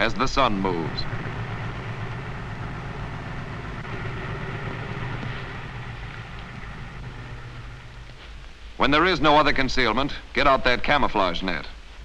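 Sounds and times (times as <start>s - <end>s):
tank engine running: 0.0s - 9.4s.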